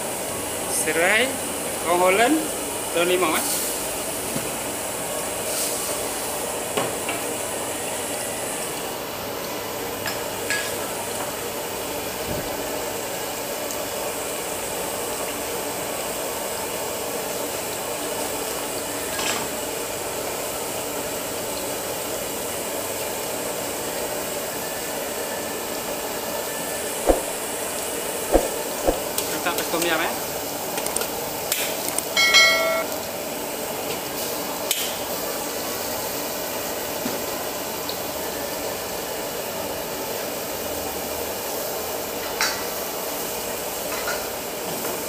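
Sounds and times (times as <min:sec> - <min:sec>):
broth hissing in a wok: 0:00.0 - 0:31.9, 0:33.1 - 0:45.0.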